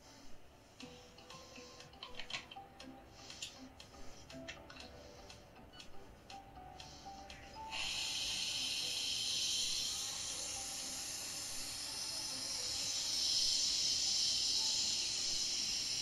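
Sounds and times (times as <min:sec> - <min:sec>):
steam wand hissing: 0:06.8 - 0:16.0.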